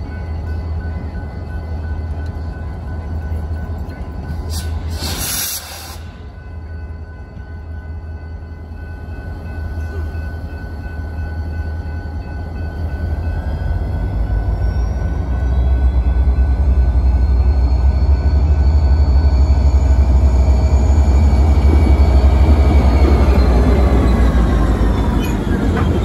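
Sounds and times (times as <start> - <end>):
brief hiss: 4.5 - 6.2
locomotive engine rumble: 6.0 - 26.0.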